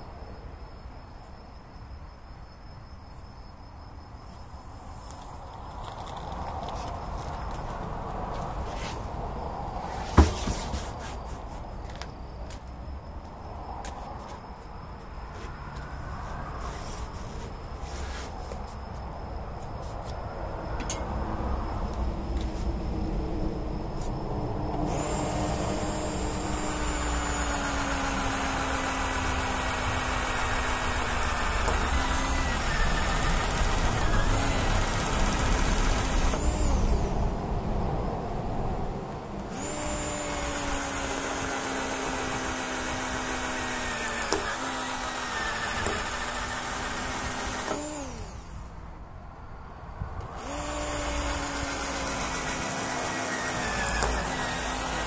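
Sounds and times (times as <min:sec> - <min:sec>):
electric drill boring into rubber: 0:24.8 - 0:37.2, 0:39.5 - 0:48.7, 0:50.3 - 0:55.0.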